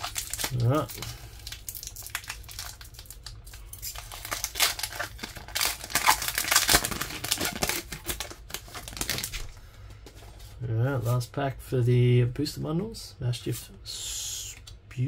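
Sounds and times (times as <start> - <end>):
foil wrapper crinkling and tearing: 0.0 - 9.6.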